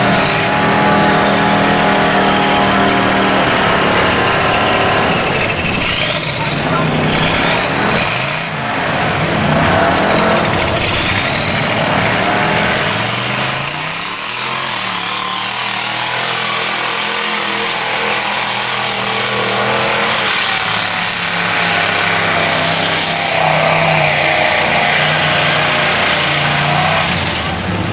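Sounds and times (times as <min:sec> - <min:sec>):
truck engine revving hard: 0:00.0 - 0:27.9
mud spraying off tires: 0:12.4 - 0:27.5.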